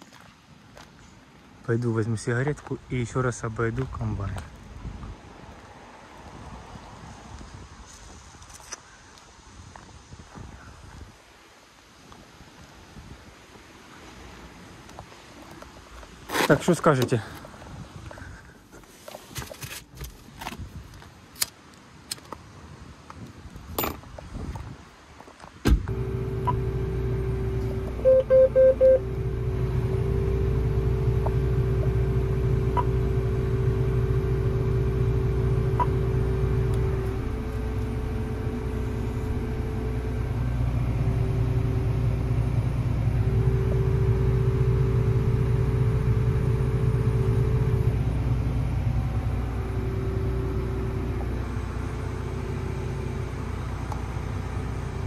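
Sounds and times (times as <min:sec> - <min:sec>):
diesel engine running: 0:25.9 - 0:55.0
two-note tone: 0:27.7 - 0:29.2
short loud beeps: 0:28.0 - 0:29.0.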